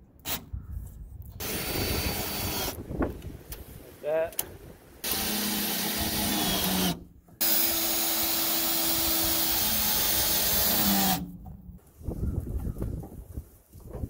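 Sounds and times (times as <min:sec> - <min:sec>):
cordless drill driving screws: 0:01.4 - 0:02.8, 0:05.0 - 0:11.3.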